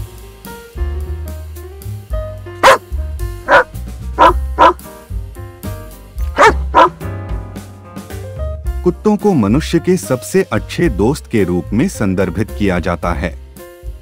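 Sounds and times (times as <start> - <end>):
music with bass beat: 0.0 - 9.2
large dog barking: 2.6 - 2.8, 3.5 - 4.8, 6.3 - 7.0.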